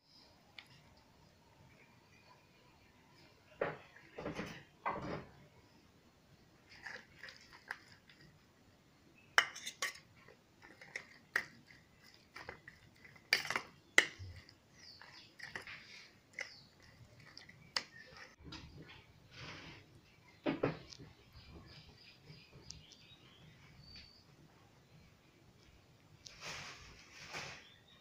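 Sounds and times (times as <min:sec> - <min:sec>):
metal spoon scraping a steel bowl: 0:09.4 - 0:18.4.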